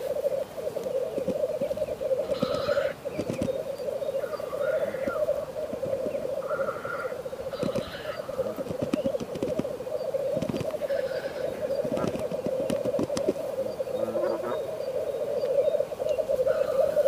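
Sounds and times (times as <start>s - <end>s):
grouse bubbling coo: 0.0s - 17.0s
short hissing bird calls: 2.3s - 3.3s, 6.4s - 9.2s, 10.8s - 15.0s
sharp clicks: 2.3s - 3.6s, 7.6s - 8.0s, 8.6s - 9.7s, 10.4s - 10.8s, 11.8s - 13.4s.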